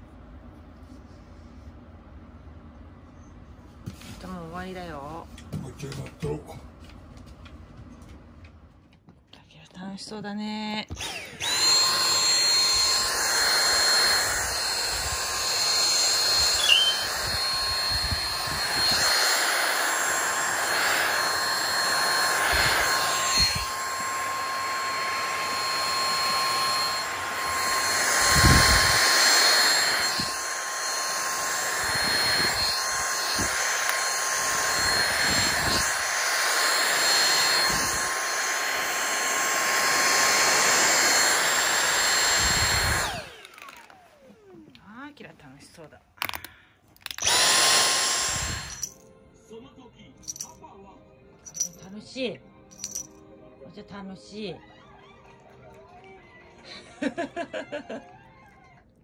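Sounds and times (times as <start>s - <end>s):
vacuum motor whining: 10.9s - 45.1s, 46.2s - 49.0s.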